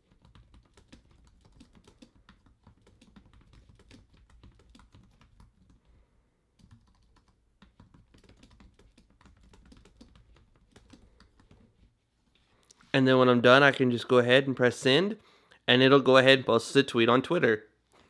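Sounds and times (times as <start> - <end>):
fast keyboard typing: 0.0 - 5.8, 6.6 - 11.8.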